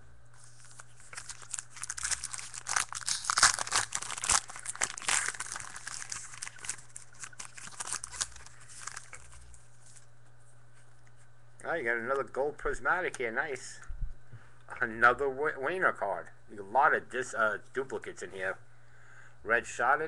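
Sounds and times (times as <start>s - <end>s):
cards rustling: 0.4s - 10.0s
wrapper tearing and crinkling: 0.4s - 10.0s.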